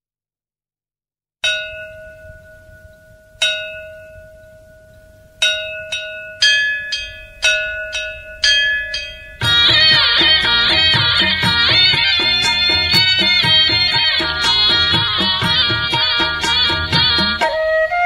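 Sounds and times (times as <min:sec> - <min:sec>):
bell-like tone ringing: 0:01.4 - 0:14.1
higher ringing tone: 0:01.4 - 0:15.3.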